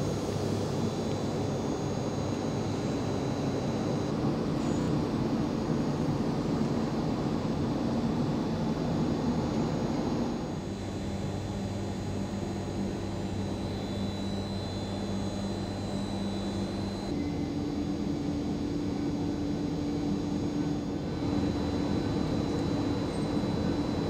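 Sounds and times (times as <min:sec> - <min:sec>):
faint high whine: 0:00.0 - 0:24.0
tram electrical drone: 0:00.0 - 0:24.0.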